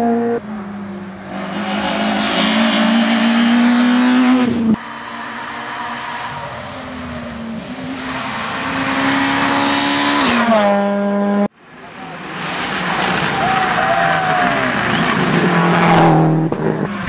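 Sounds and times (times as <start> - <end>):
rally car engine passing: 0.0 - 17.0.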